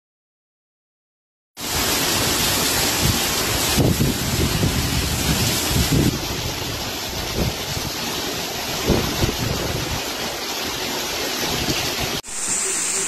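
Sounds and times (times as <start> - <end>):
heavy rain hissing: 1.6 - 13.0
wind gusting on microphone: 2.8 - 10.3.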